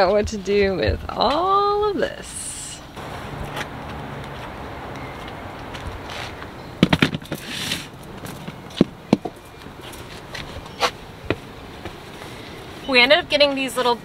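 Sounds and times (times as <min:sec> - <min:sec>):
plastic bins knocking: 0:06.8 - 0:07.4.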